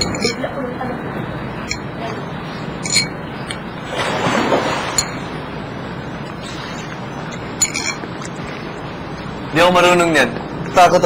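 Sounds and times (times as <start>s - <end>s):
tableware clinking: 0.0s - 0.6s, 1.6s - 2.2s, 2.8s - 3.2s, 4.8s - 5.3s, 7.3s - 8.4s.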